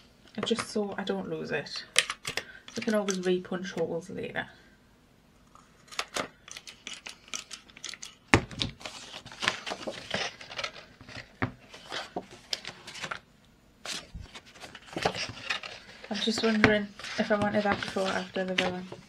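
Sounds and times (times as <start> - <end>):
paper rustling: 5.9 - 13.2, 13.8 - 19.0.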